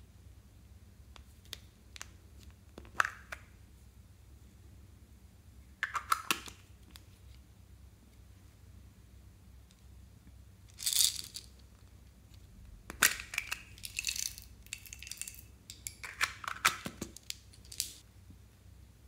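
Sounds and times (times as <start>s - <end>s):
plastic beads clicking and rattling: 10.7s - 11.6s, 12.9s - 18.0s.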